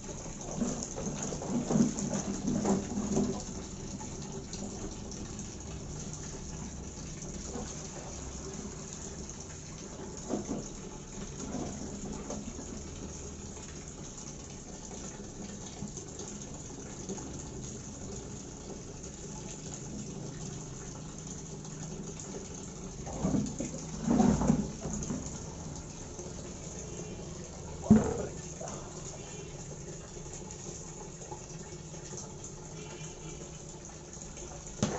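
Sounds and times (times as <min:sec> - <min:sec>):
water pouring and splashing: 0:00.0 - 0:34.9
hollow plastic knocks: 0:27.8 - 0:28.4.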